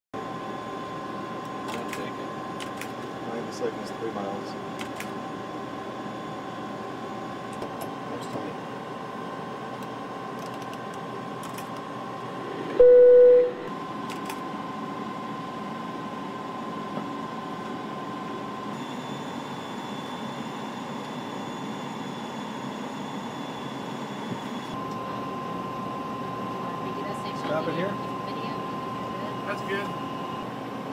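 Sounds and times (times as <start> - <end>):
faint high whine: 11.8 - 13.8, 14.8 - 30.9
loud electronic beep: 12.7 - 13.7
faint steady tone: 12.8 - 13.7.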